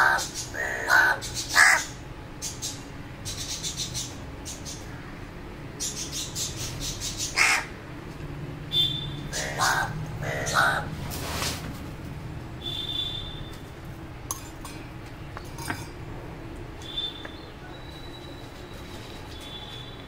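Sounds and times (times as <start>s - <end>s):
crow cawing: 0.0s - 2.0s, 7.3s - 7.8s, 8.8s - 11.0s.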